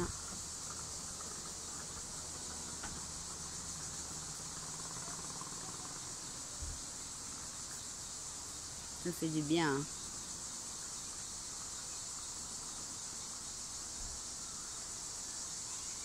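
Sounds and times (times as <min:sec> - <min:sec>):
insect chorus: 0:00.0 - 0:16.0.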